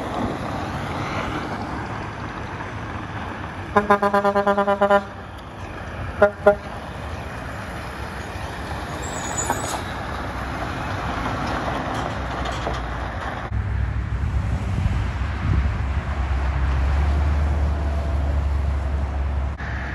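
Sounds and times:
deep truck engine rumble: 0.0 - 19.9
truck diesel engine passing: 0.0 - 19.9
truck horn toots: 3.7 - 5.2, 6.2 - 6.8.

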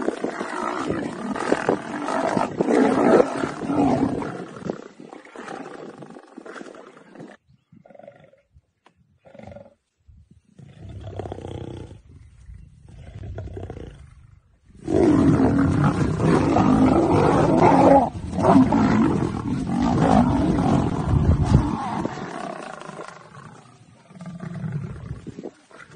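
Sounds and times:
lions snarling and roaring: 0.0 - 8.4, 12.9 - 25.9
lion growls: 0.0 - 8.5, 12.8 - 25.9.

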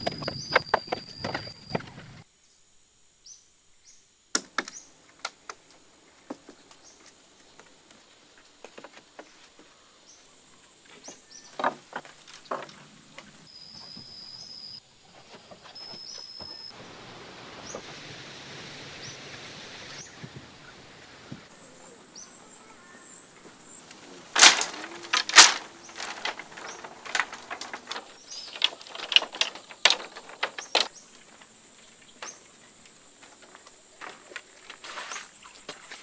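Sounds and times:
soft steady hiss: 1.6 - 36.0
bamboo poles knocking: 11.5 - 12.8, 23.9 - 31.4
bamboo sticks clacking: 23.8 - 31.5.

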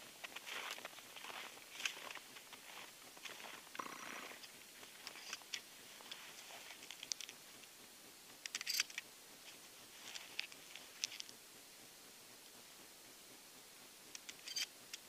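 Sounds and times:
footsteps crunching in snow: 0.0 - 7.0
small gun clicks: 8.4 - 9.1, 14.1 - 15.0.

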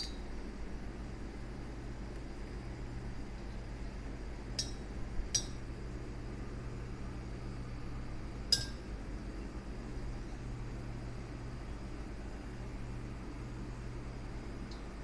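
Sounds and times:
steady low hum: 0.0 - 15.0
glass bottle clinks: 8.6 - 8.8.

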